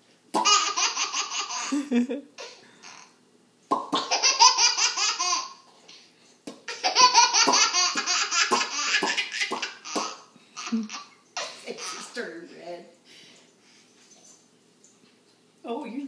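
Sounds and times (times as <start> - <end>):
baby laughing: 0.4 - 3.2, 3.9 - 5.7, 6.6 - 12.2.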